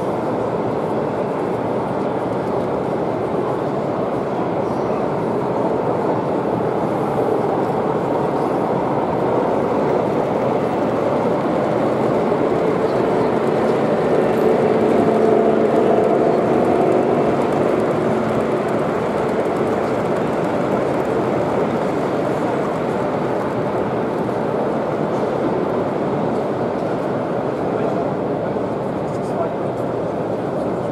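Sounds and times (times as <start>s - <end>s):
model train rolling rumble: 5.2s - 27.9s.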